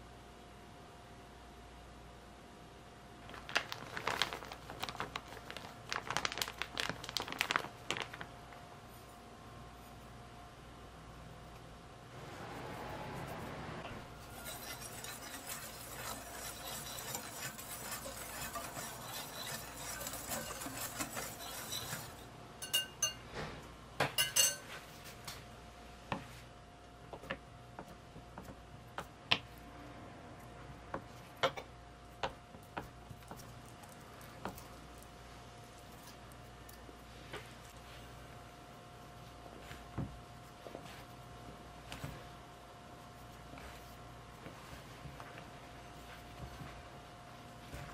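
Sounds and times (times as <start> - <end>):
whisk scratching in glass bowl: 14.2 - 23.2
whisk clinking on glass rim: 14.3 - 23.2, 24.2 - 24.8.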